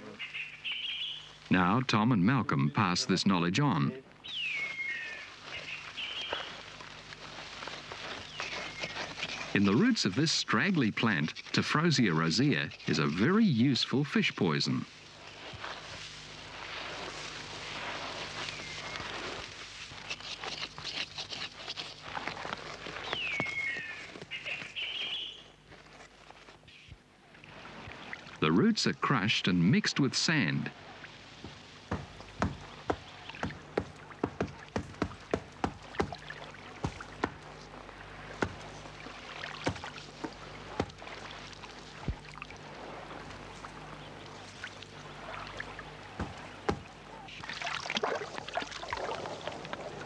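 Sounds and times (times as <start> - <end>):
dry grass rustling and snapping: 4.3 - 9.9, 14.9 - 26.7, 31.0 - 50.0.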